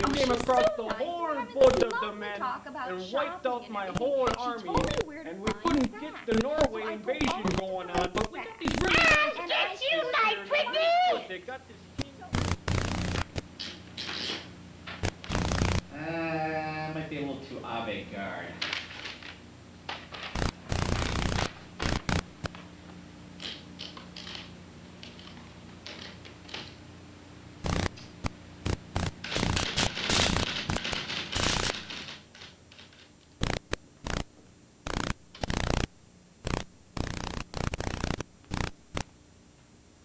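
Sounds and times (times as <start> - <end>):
paper rolled through typewriter: 29.2 - 33.1.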